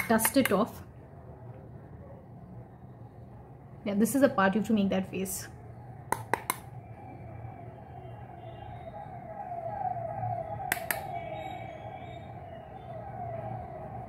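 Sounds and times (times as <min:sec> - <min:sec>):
faint siren sweeping downward: 0:05.6 - 0:14.0
sharp tap: 0:06.1 - 0:06.6.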